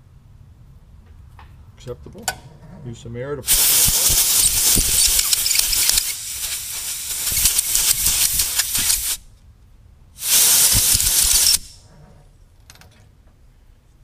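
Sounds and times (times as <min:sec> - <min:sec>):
air blow gun hissing: 0:03.5 - 0:09.2, 0:10.2 - 0:11.8.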